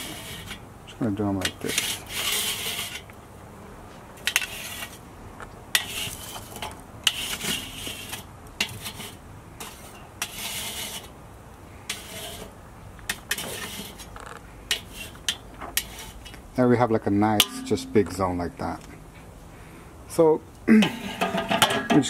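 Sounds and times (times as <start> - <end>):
metal tools scraping on grate: 0.0 - 0.6, 1.2 - 3.1, 4.2 - 5.0, 5.7 - 11.1, 11.8 - 16.4, 17.4 - 18.4, 20.8 - 22.0.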